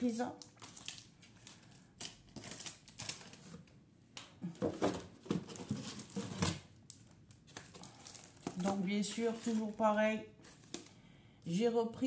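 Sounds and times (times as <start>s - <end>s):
plastic packaging crinkling: 0.2s - 3.7s, 5.2s - 11.0s.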